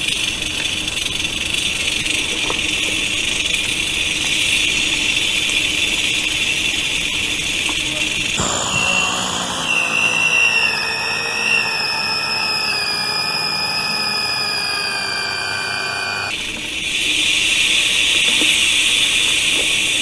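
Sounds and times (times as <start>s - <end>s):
drone motors whining: 8.4s - 16.3s.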